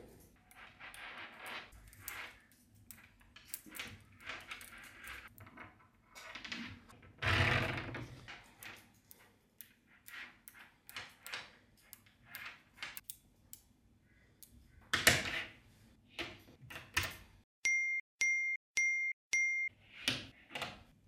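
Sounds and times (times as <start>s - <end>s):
short electronic dings: 17.7s - 19.7s.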